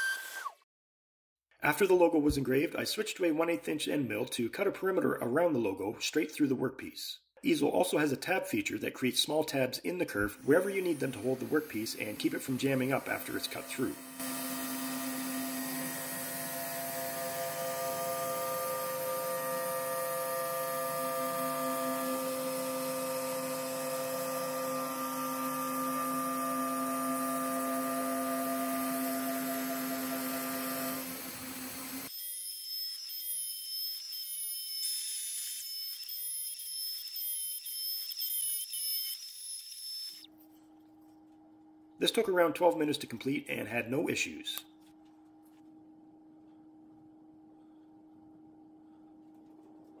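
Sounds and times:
router spindle cutting plastic: 0:10.4 - 0:40.2.

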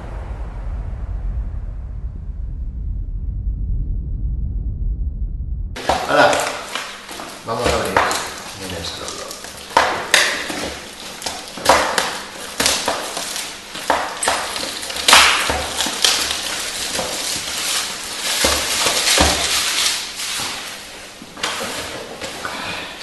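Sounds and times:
plastic shrink-wrap crinkling: 0:05.8 - 0:22.4.

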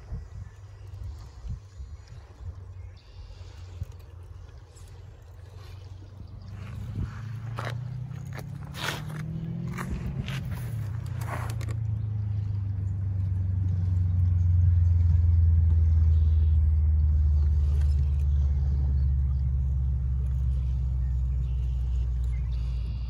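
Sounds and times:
low engine rumble: 0:00.0 - 0:23.0
sharp scrapes: 0:06.8 - 0:11.8.

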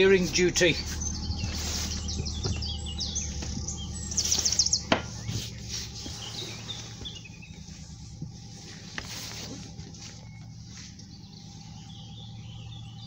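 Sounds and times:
diesel engine running: 0:00.0 - 0:13.0
small birds chirping and trilling: 0:00.0 - 0:13.0.

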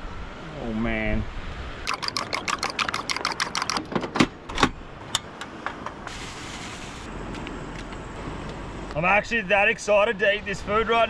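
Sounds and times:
fork beating eggs in a bowl: 0:01.9 - 0:03.8.

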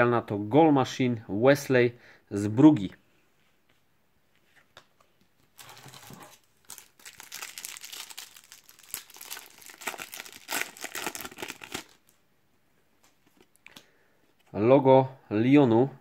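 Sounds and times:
card packet wrapper crinkling: 0:05.5 - 0:12.2.

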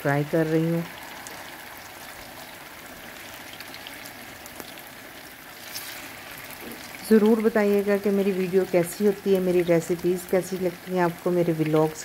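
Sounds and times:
deep-frying sizzle with crackles: 0:00.0 - 0:12.0.

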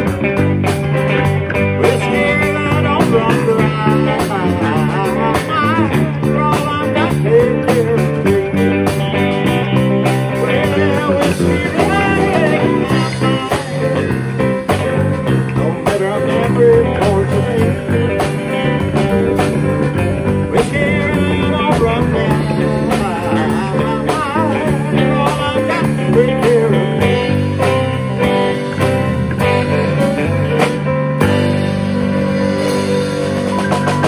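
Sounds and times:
lead guitar bent notes: 0:00.0 - 0:34.0
live country-rock band playing: 0:00.0 - 0:34.0.

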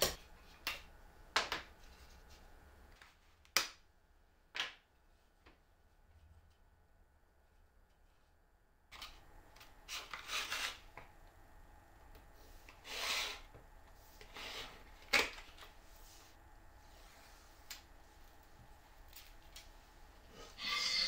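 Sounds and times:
tape rubbed onto wooden block: 0:09.9 - 0:10.8.

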